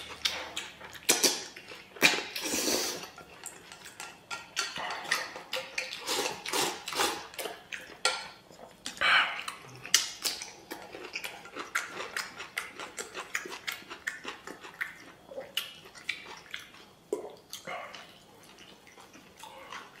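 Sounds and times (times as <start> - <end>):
person chewing: 0.0 - 20.0
person slurping: 0.1 - 3.2, 4.8 - 7.6.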